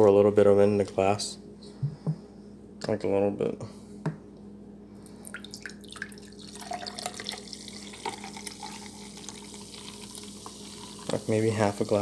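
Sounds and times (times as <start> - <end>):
soda fizzing into a glass: 5.3 - 12.0.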